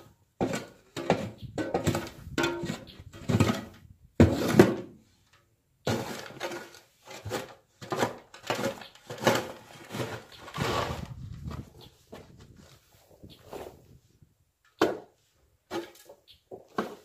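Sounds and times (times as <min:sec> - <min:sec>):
metal shovel scraping wood: 0:00.0 - 0:14.2, 0:14.9 - 0:17.0
footsteps: 0:09.6 - 0:14.2.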